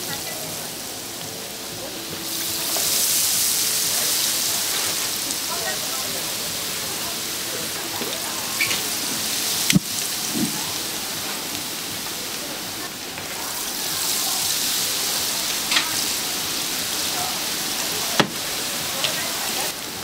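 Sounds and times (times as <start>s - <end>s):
oil sizzling: 0.0s - 20.0s.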